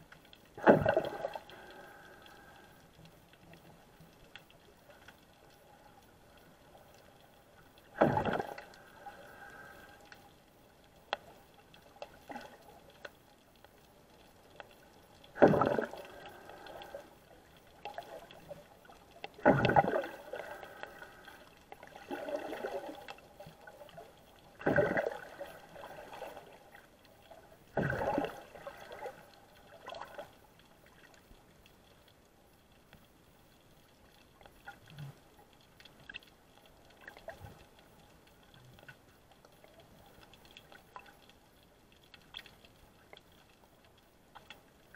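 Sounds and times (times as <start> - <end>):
faint gurgles: 0.0 - 2.9, 7.8 - 10.2, 15.2 - 31.3, 34.4 - 41.2
muffled underwater water sloshing: 0.0 - 44.9.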